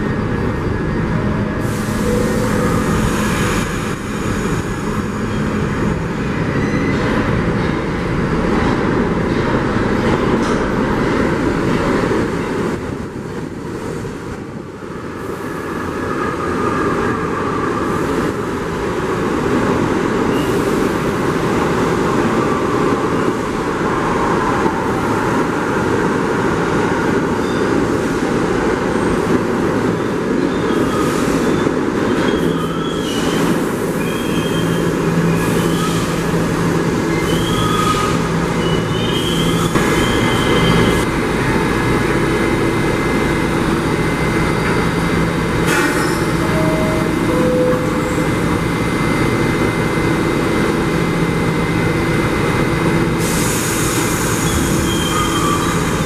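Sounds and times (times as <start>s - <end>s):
subway train rumble: 0.0s - 56.0s
high-pitched wheel squeals: 30.4s - 36.3s, 37.1s - 41.0s, 53.9s - 56.0s.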